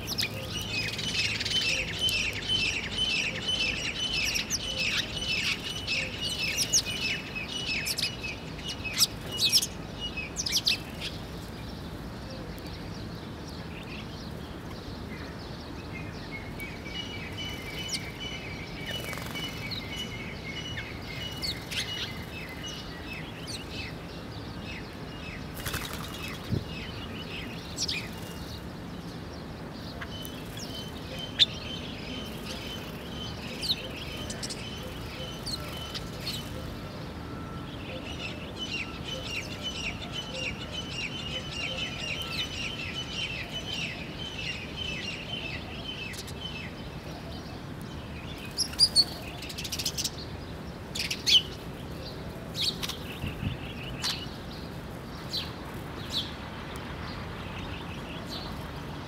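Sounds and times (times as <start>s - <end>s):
sparrows chirping: 0.0s - 59.0s.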